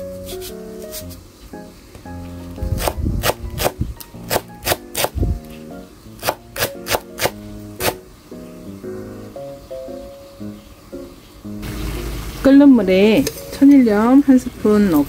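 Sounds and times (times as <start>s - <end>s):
background music: 0.0s - 11.8s.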